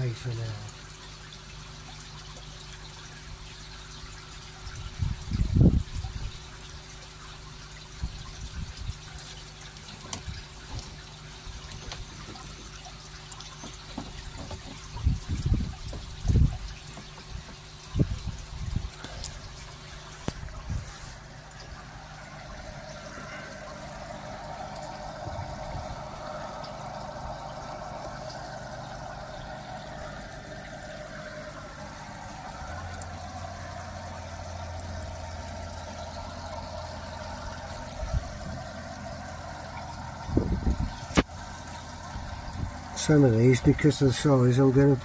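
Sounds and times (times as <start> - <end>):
low steady hum: 0.0 - 45.0
water trickling: 0.0 - 45.0
loud knocks: 13.6 - 16.2.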